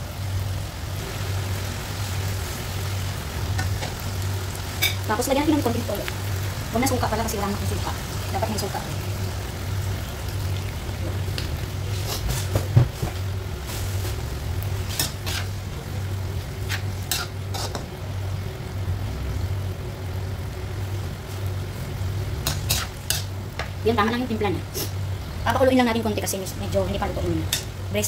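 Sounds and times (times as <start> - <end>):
steady low hum: 0.0 - 28.0
spatula scraping a wok: 11.8 - 17.9, 22.4 - 23.7.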